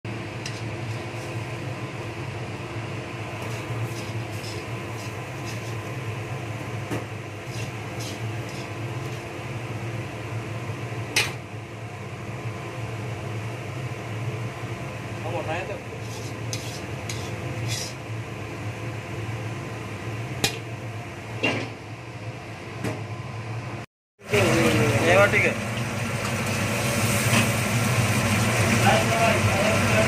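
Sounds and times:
mechanical motor hum: 0.1 - 21.4.

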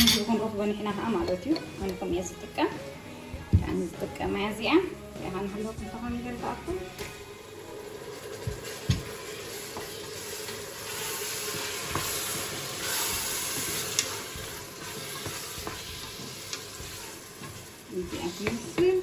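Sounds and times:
meat sizzling in oil: 7.0 - 19.0.

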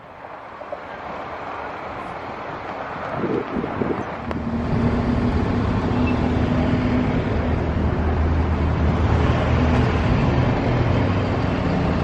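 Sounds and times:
road and wind noise: 0.0 - 12.0
vehicle engine hum: 1.3 - 12.0.

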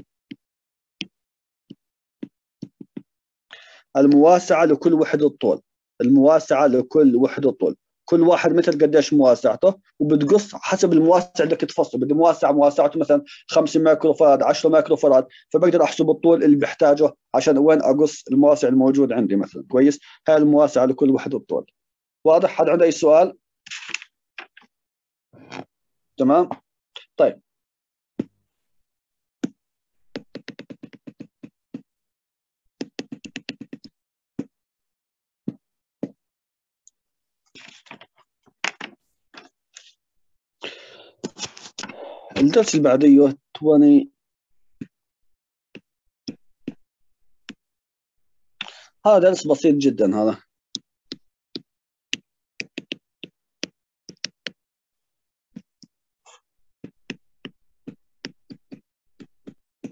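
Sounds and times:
stylus tapping on tablet screen: 0.0 - 0.4, 1.0 - 3.1, 29.4 - 31.9, 32.8 - 34.6, 35.4 - 36.2, 44.8 - 45.0, 50.7 - 54.6, 55.6 - 59.9.

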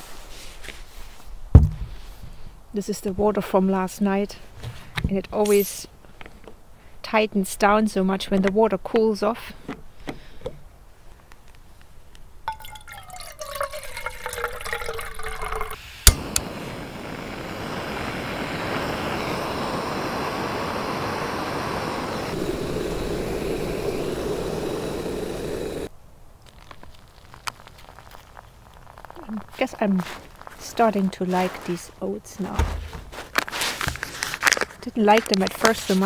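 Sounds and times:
gas burner hissing: 5.4 - 5.8, 15.7 - 25.9
water pouring into a pot: 12.5 - 15.8.

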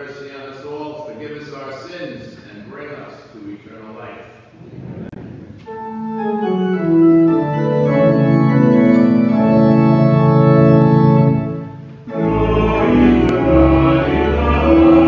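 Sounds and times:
organ playing sustained chords: 5.6 - 15.0.

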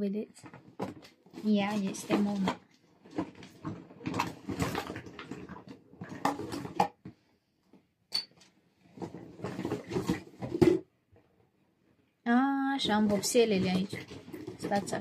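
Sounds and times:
packaging rustling and knocking: 0.4 - 7.2, 8.9 - 10.9, 12.8 - 15.0.

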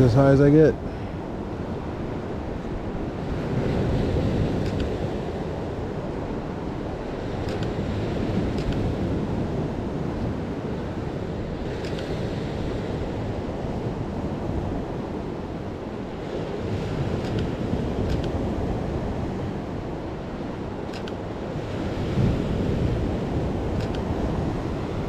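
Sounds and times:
waves washing against rocky shore: 0.0 - 25.0
wind buffeting microphone: 0.0 - 25.0
faint clicks: 4.6 - 4.9, 7.4 - 7.8, 20.9 - 21.2, 23.8 - 24.0.

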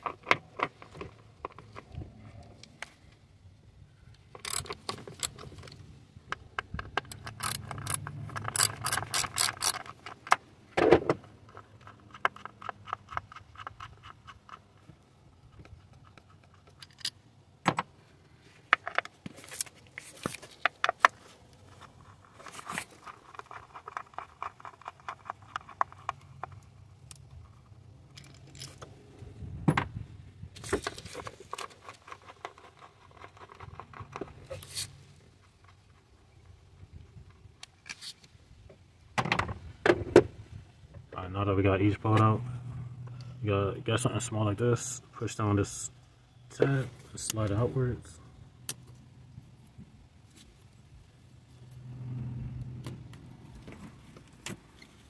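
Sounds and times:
hand ratchet clicking: 4.4 - 5.4, 7.0 - 10.2
metal clinks of socket and bolts: 4.4 - 5.7, 6.8 - 10.4, 28.1 - 28.9.

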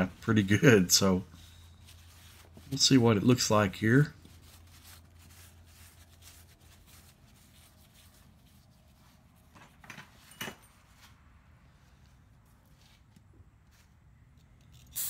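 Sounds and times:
paper towel rustling: 0.0 - 9.5.

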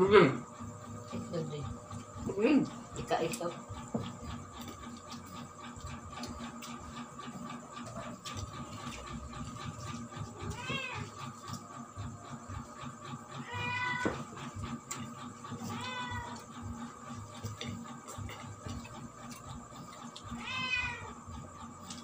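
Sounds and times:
cat meowing: 10.5 - 11.3, 13.4 - 14.3, 15.6 - 16.5, 20.4 - 21.2.

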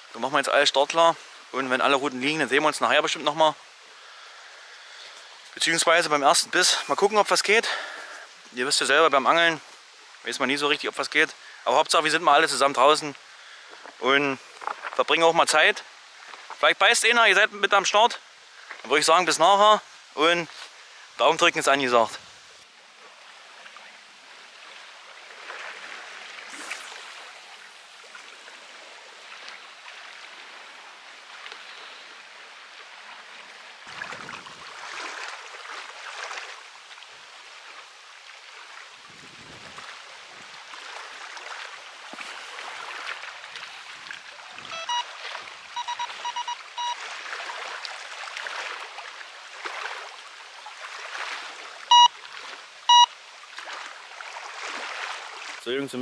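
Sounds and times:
loud single beeps: 44.7 - 45.1, 45.8 - 47.0, 51.9 - 52.1, 52.9 - 53.1
short electronic beeps: 44.7 - 45.1, 45.8 - 47.0, 51.9 - 52.1, 52.9 - 53.1.

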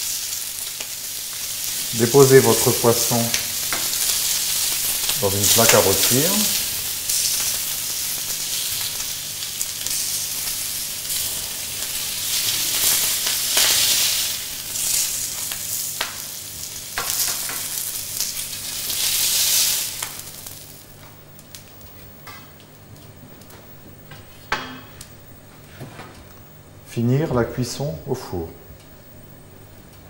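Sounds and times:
fish sizzling in a tray: 0.0 - 21.8.

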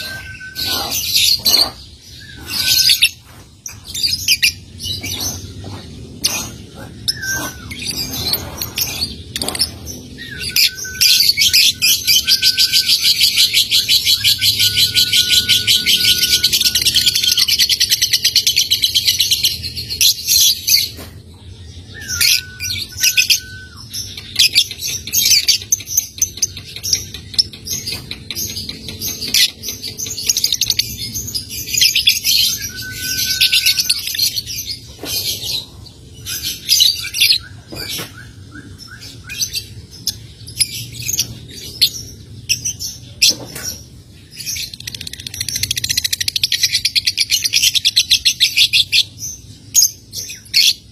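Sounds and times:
thin level whistle: 32.6 - 34.0.

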